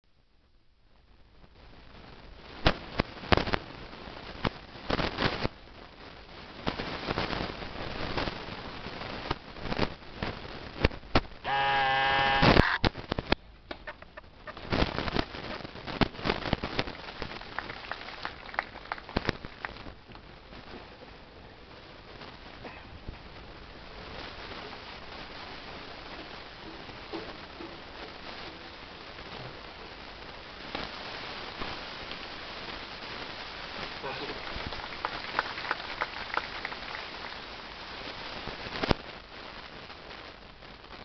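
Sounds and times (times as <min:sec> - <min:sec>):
held pitched call: 0:11.5 - 0:12.9.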